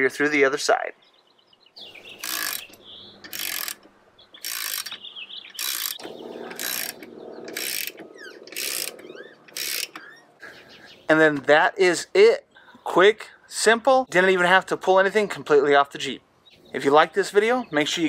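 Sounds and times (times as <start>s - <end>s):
ratchet pawl clicking: 2.2s - 3.8s, 4.4s - 10.1s.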